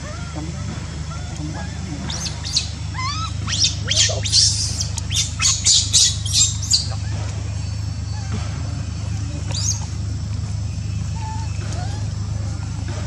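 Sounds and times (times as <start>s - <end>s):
baby monkey squealing: 0.0s - 10.1s, 10.8s - 13.0s.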